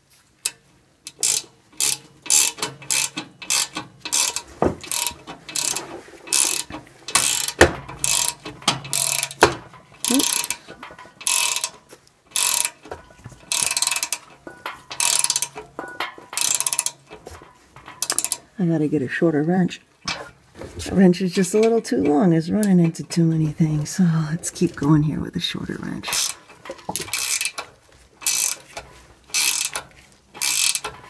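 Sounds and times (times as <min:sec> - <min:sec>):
ratcheting wrench clicking: 0:00.4 - 0:18.5, 0:26.1 - 0:31.0
wrench knocking on metal parts: 0:01.1 - 0:18.6, 0:26.1 - 0:31.0.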